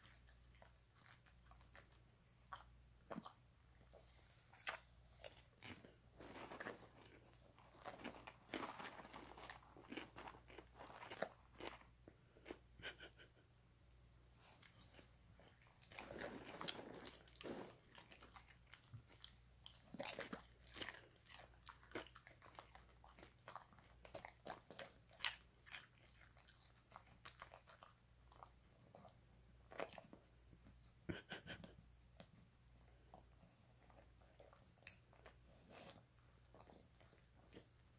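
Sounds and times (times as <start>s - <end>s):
dog chewing popcorn: 4.6s - 11.9s, 15.8s - 28.5s.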